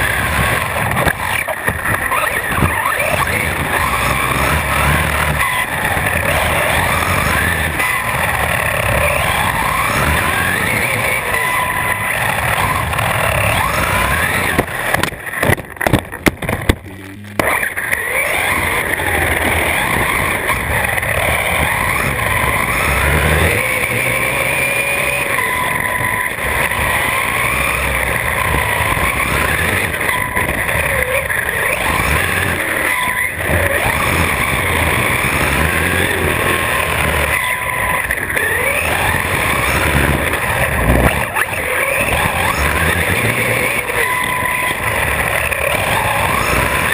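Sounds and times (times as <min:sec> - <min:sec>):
electric motor whining: 0:00.0 - 0:46.9
tyre noise rumble: 0:00.0 - 0:46.9
sharp knocks and jolts: 0:14.6 - 0:17.6.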